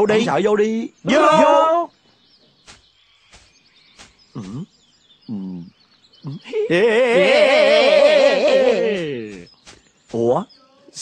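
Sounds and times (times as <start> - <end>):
faint bird chirps: 0.0 - 11.0
man doing spooky ghost laugh: 6.2 - 8.8.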